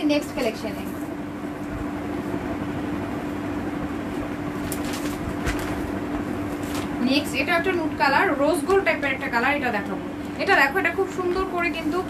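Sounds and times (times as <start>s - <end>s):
room noise hum: 0.0s - 12.0s.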